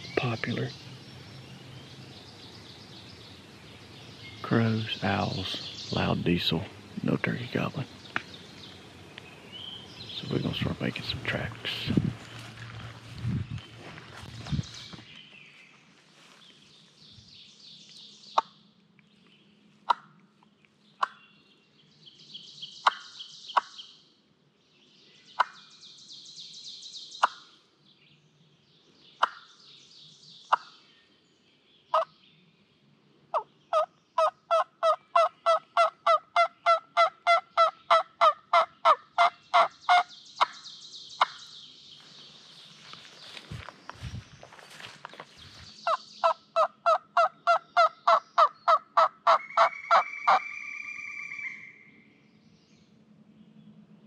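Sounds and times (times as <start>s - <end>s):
turkey call yelping: 33.7s - 40.0s, 45.9s - 51.8s
turkey call clucks: 33.7s - 40.5s, 45.9s - 51.6s.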